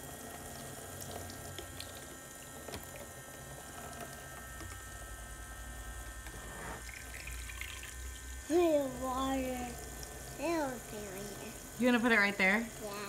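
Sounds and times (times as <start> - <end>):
water stream into plastic cup: 6.8 - 10.4.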